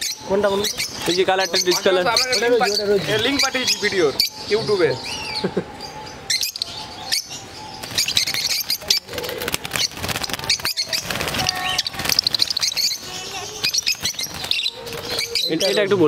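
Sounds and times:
lovebirds chirping: 0.0s - 16.0s
wing flutters: 7.8s - 15.5s.

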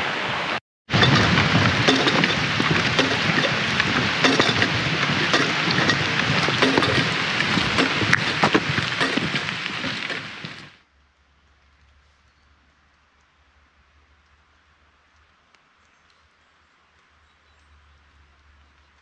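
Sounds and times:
heavy rain: 0.0s - 10.8s
raindrops tapping close by: 0.9s - 19.0s.

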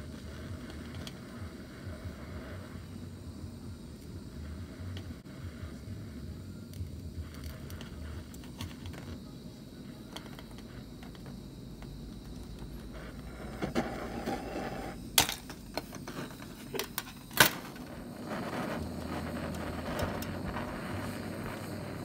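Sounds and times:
blowtorch flame hissing: 0.0s - 22.0s.

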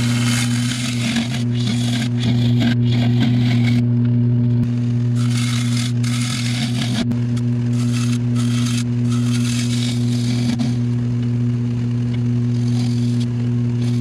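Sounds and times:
gouge scraping wood on lathe: 0.0s - 3.8s, 5.2s - 11.0s, 12.4s - 14.0s
lathe electric hum: 0.0s - 14.0s.

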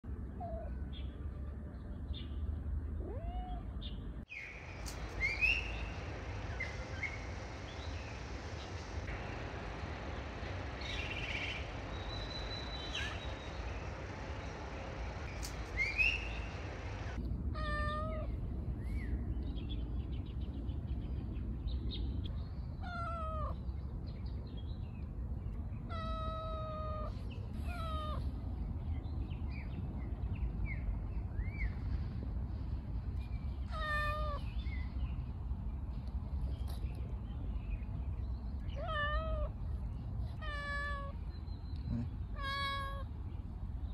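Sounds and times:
low background rumble: 0.0s - 43.9s
cat meowing: 3.0s - 3.7s, 17.6s - 18.3s, 25.9s - 28.2s, 33.7s - 34.5s, 38.8s - 39.5s, 40.3s - 41.2s, 42.3s - 43.1s.

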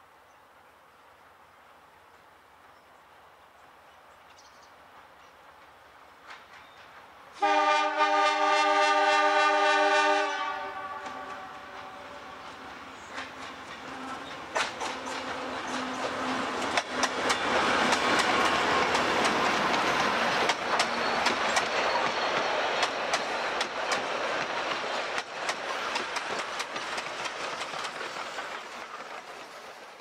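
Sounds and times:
diesel train rumbling past: 4.7s - 30.0s
wheels clicking over rail joints: 11.0s - 30.0s.

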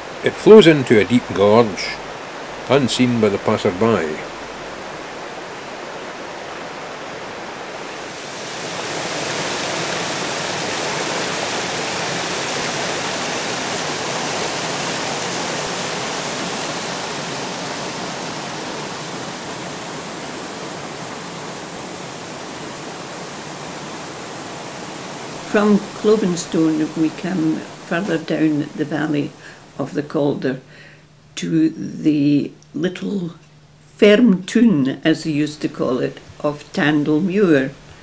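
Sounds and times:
river water rushing over rocks: 0.0s - 29.8s.

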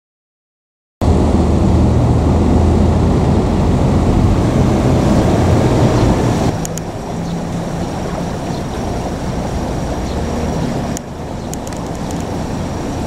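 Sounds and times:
vehicle engine rumble: 1.0s - 13.0s.

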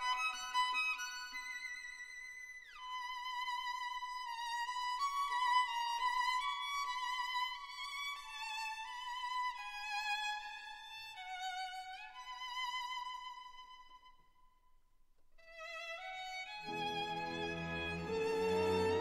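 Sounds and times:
slow violin melody: 15.4s - 19.0s.

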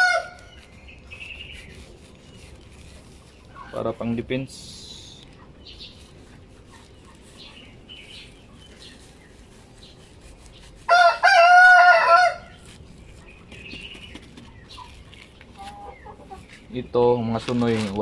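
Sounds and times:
rooster crowing: 0.0s - 0.4s, 10.9s - 12.6s
chickens clucking and chirping: 0.0s - 17.3s.

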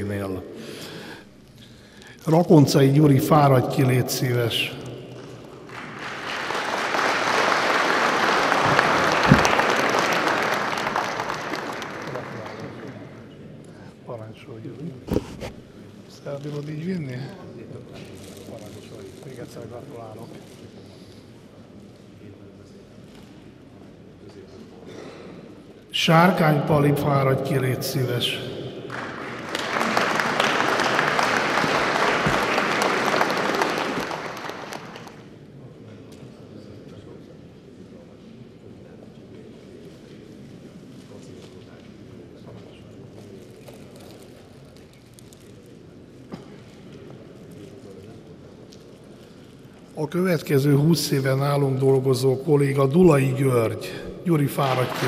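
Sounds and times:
audience applauding: 5.2s - 13.2s, 28.9s - 35.3s, 54.5s - 55.0s.

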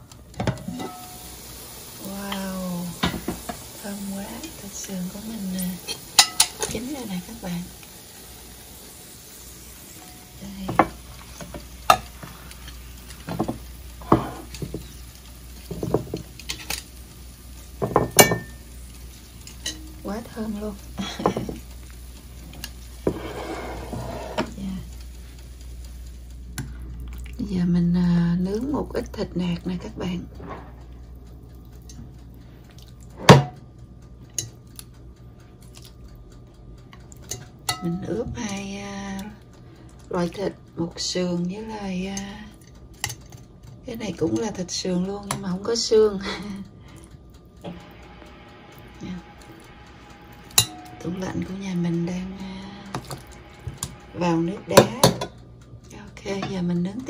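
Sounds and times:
faint steady hum: 0.0s - 57.0s
metal tongs clinking on rack: 5.7s - 6.9s, 17.8s - 18.7s.

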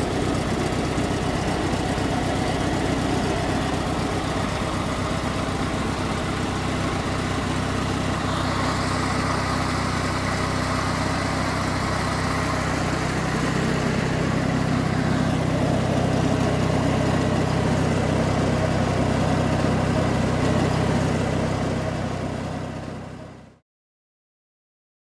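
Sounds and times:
lawn tractor engine running: 0.0s - 23.6s.

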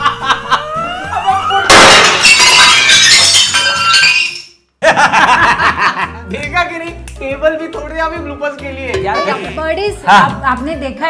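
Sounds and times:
glass shattering: 1.6s - 4.6s
background music: 4.8s - 11.0s.

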